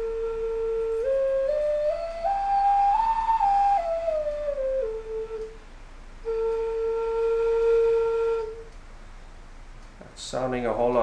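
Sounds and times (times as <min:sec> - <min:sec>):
wooden flute playing: 0:00.0 - 0:08.8.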